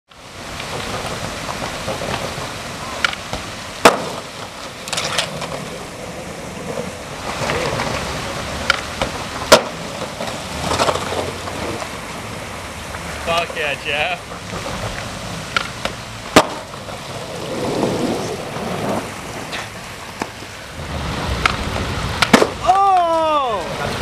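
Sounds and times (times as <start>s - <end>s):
skateboard rolling through water: 0.1s - 24.0s
water splashing: 0.1s - 24.0s
skateboard smacks: 3.0s - 5.8s, 8.6s - 11.9s, 15.5s - 17.0s, 17.6s - 20.4s, 21.4s - 23.3s.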